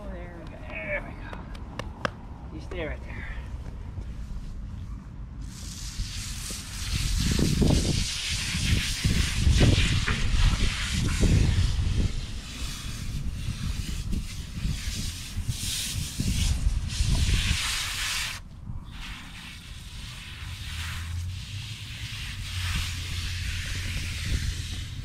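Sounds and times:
hose nozzle spraying water: 0:05.4 - 0:25.0.

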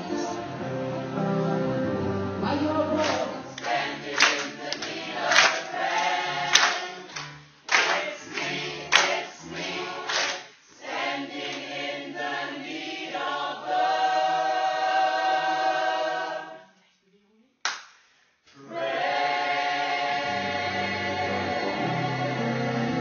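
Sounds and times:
group of people singing: 0:02.5 - 0:16.8, 0:18.6 - 0:23.0
hand claps: 0:03.0 - 0:09.2, 0:10.1 - 0:10.4, 0:17.6 - 0:18.0.

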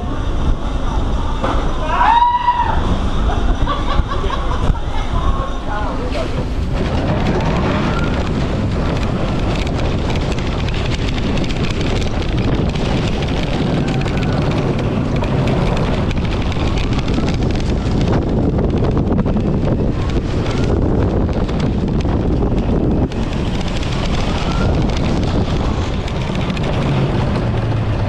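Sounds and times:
steady low rumble: 0:00.0 - 0:28.0
wind buffeting microphone: 0:00.0 - 0:28.0.

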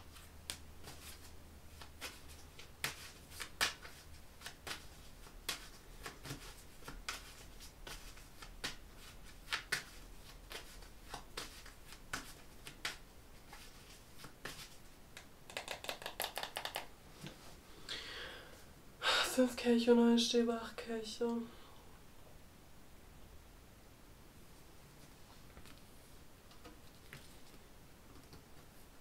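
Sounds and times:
cards being shuffled: 0:00.1 - 0:17.4.

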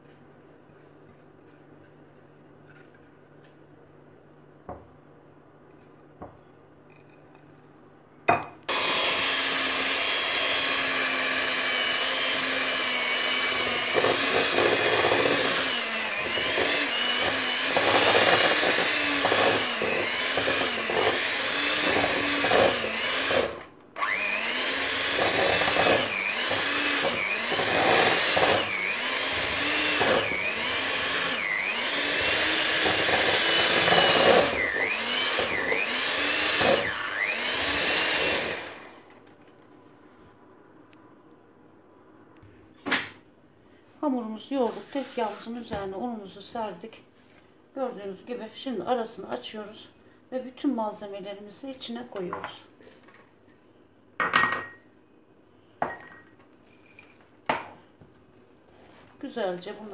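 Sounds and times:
electric hand mixer motor running: 0:08.7 - 0:39.0.

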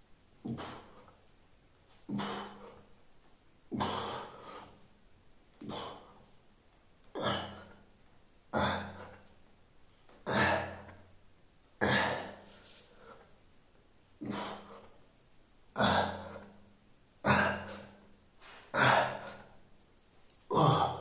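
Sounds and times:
heavy breathing out: 0:00.4 - 0:01.2, 0:02.0 - 0:03.0, 0:03.7 - 0:04.9, 0:14.2 - 0:15.1, 0:15.8 - 0:19.6.

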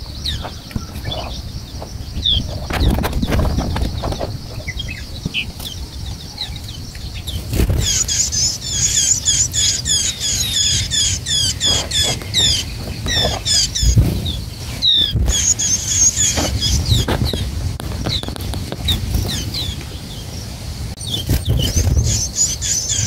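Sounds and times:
nestlings chirping: 0:00.0 - 0:23.0
dull thumps: 0:11.7 - 0:15.6.

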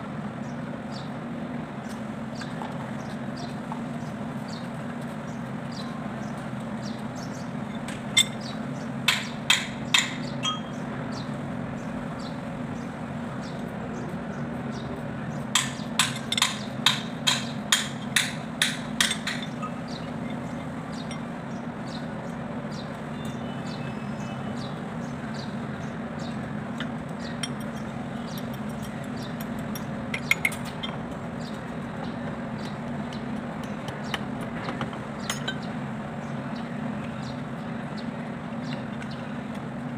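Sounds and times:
hammer striking metal: 0:15.6 - 0:19.6.

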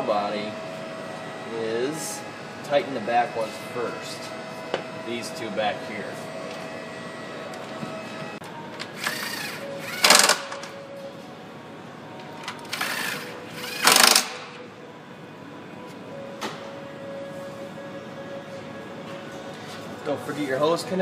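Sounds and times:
impact driver bursts: 0:09.1 - 0:10.6, 0:12.8 - 0:14.6.

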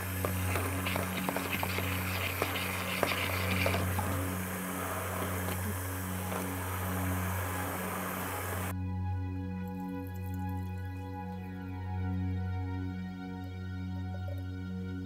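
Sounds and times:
blade clicks and splashing: 0:00.0 - 0:07.9
immersion blender motor hum: 0:00.0 - 0:08.7.

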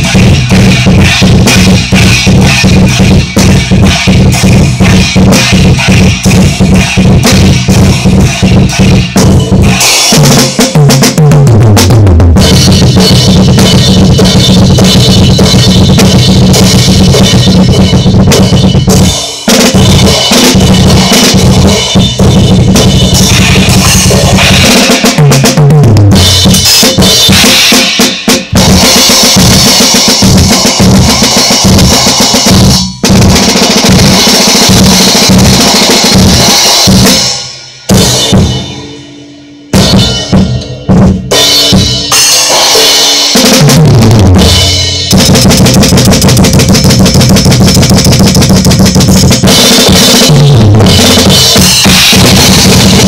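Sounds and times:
tom drum fill: 0:00.0 - 0:37.2, 0:39.7 - 0:53.0
crashing cymbals: 0:12.5 - 0:25.2.

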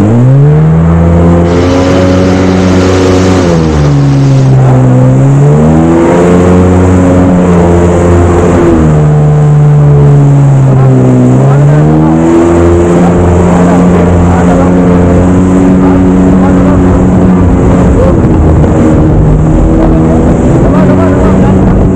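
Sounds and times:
jet ski engine: 0:00.0 - 0:21.9
water spray hissing: 0:01.4 - 0:05.2.

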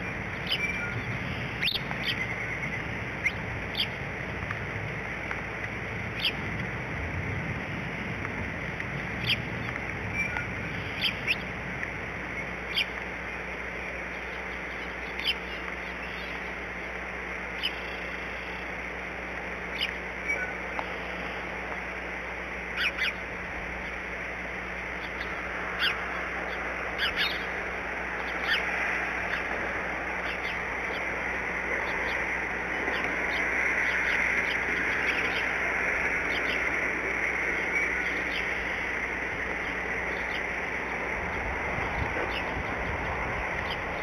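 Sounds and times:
high bird chirps: 0:00.0 - 0:04.0, 0:25.0 - 0:27.6
rain hiss: 0:00.0 - 0:44.0.

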